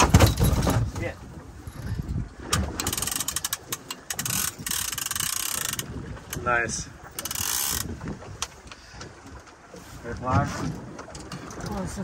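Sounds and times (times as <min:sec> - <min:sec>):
fishing reel ratcheting: 0:02.8 - 0:06.5, 0:07.2 - 0:07.9.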